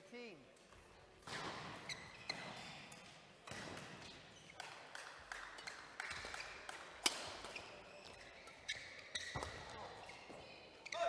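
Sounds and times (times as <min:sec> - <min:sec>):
shoe squeaks on court floor: 0:01.3 - 0:03.0, 0:07.4 - 0:11.0.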